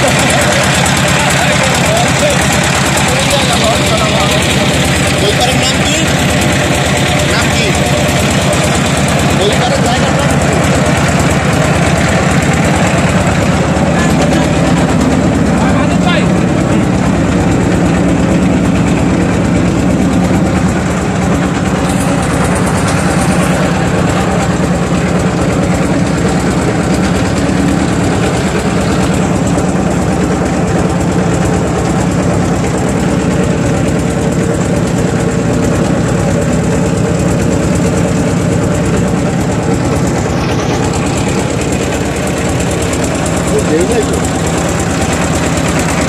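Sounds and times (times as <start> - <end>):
boat engine droning: 0.0 - 46.0.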